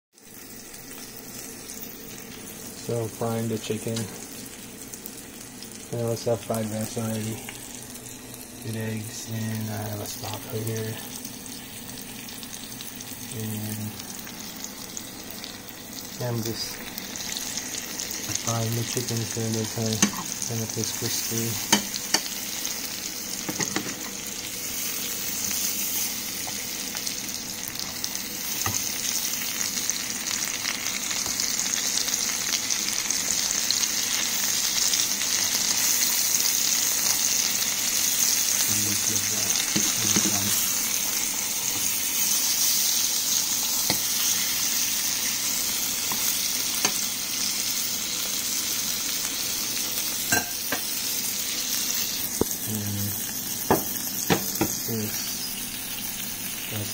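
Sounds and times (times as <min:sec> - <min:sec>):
chicken sizzling in oil: 0:00.2 - 0:56.9.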